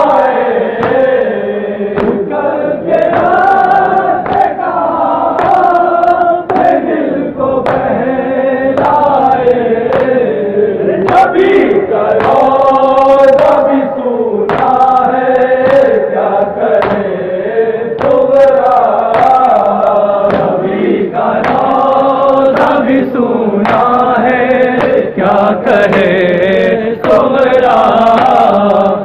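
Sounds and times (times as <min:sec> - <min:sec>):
men chanting together: 0:00.0 - 0:29.0
hand slaps on chest: 0:02.0 - 0:02.2, 0:04.2 - 0:04.6, 0:05.4 - 0:05.8, 0:07.6 - 0:08.0, 0:09.9 - 0:10.2, 0:12.2 - 0:12.5, 0:14.5 - 0:14.8, 0:16.8 - 0:17.1, 0:18.0 - 0:18.2, 0:19.1 - 0:20.6, 0:21.4 - 0:21.8.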